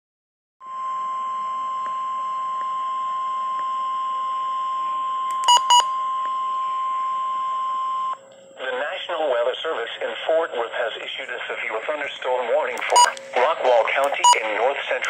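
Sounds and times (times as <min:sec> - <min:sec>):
steady alarm tone: 0:00.6 - 0:08.3.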